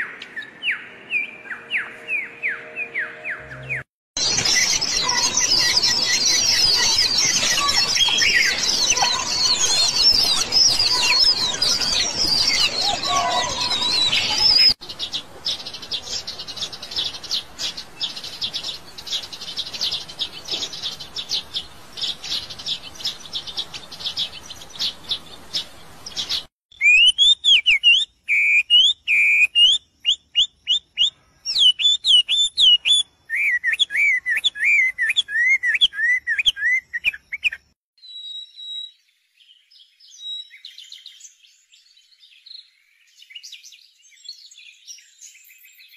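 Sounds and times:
small birds chirping: 0:04.2 - 0:45.9
bird singing whistled phrases: 0:26.7 - 0:39.0.

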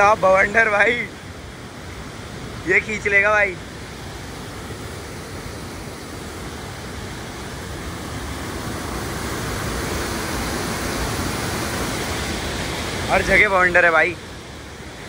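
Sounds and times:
water rushing through sluice gates: 0:00.0 - 0:15.0.

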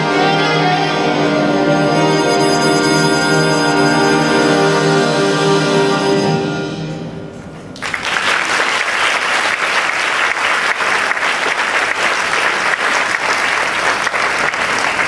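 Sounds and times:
wind band chord: 0:00.0 - 0:07.5
audience applause: 0:07.8 - 0:15.0.

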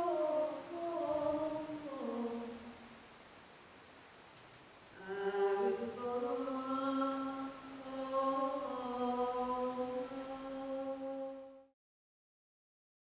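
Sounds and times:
person chanting wordless notes: 0:00.0 - 0:02.7, 0:05.0 - 0:11.6.

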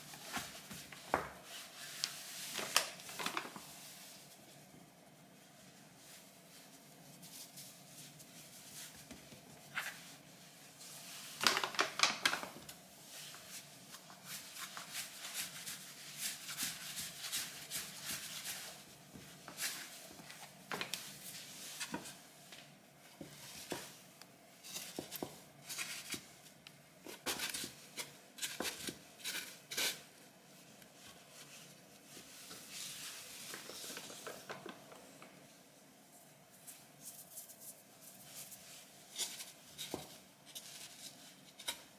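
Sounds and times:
hands working dough: 0:00.0 - 0:41.9.

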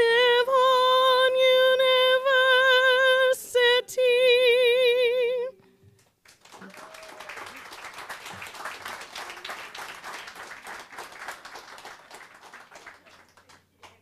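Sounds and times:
audience applauding: 0:06.0 - 0:14.0.

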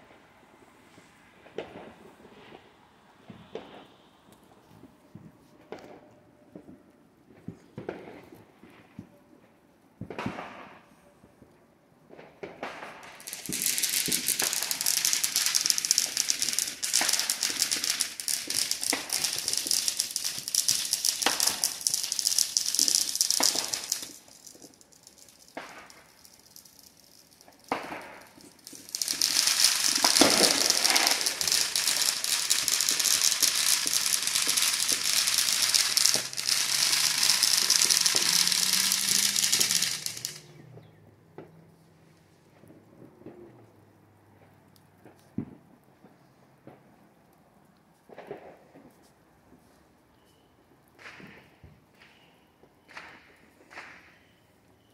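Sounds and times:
single firework pops: 0:01.4 - 0:02.6, 0:10.0 - 0:10.9, 0:12.1 - 0:24.8, 0:27.4 - 0:40.5, 0:48.1 - 0:48.8, 0:51.0 - 0:54.4
firecrackers crackling rapidly: 0:12.2 - 0:40.7, 0:52.9 - 0:54.4.

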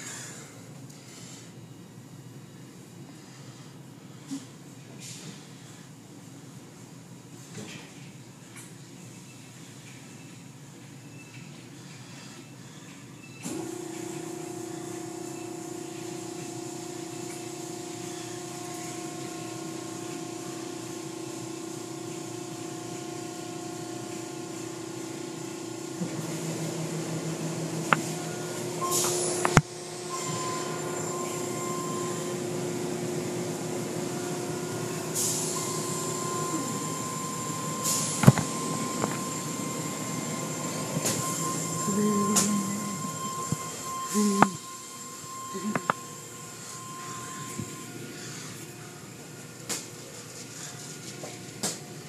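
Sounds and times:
machinery hum: 0:00.0 - 0:52.0.

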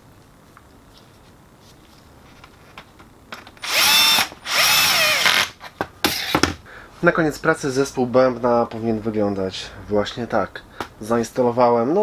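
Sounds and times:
drill motor whine: 0:03.6 - 0:05.5.

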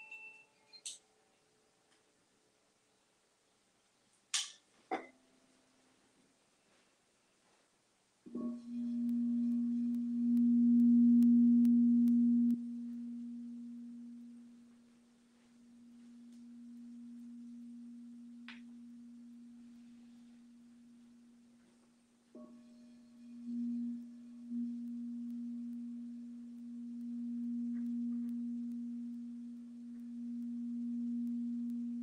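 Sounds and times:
singing bowl tone: 0:00.0 - 0:00.8, 0:08.3 - 0:32.0.

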